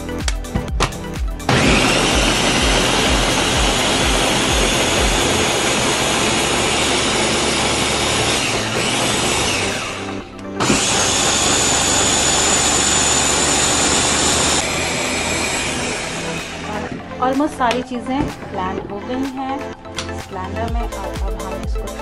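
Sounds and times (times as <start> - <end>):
blender motor whining: 1.5 - 17.0.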